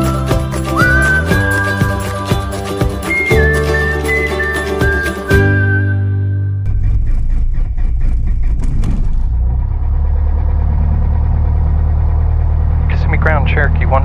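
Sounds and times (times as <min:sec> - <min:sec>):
aircraft engine idling: 0:06.7 - 0:14.0.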